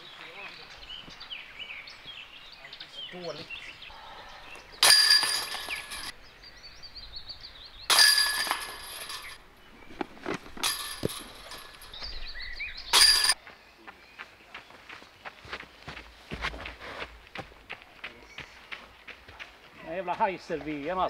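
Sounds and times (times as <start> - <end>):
discs striking metal chains: 4.8 - 6.1, 7.9 - 9.4, 10.6 - 12.0, 12.9 - 13.4.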